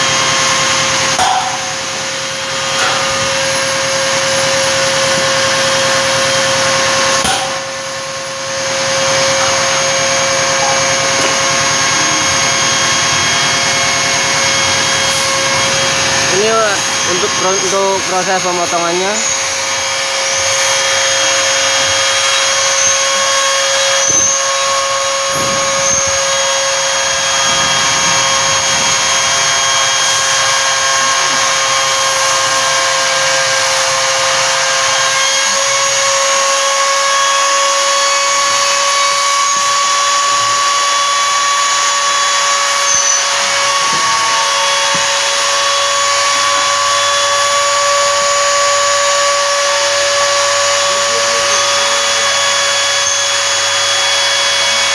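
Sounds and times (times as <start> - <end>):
router spindle high whine: 0.0 - 54.9
cutter hissing through acrylic: 13.9 - 29.0, 38.2 - 54.9.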